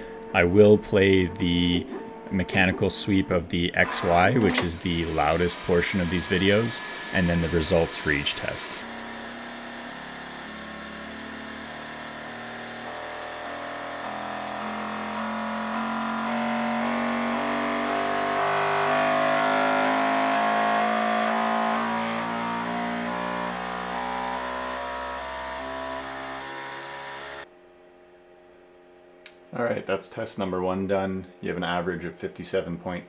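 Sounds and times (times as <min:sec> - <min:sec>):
printer motors buzzing stepped tones: 0:00.6 - 0:16.4.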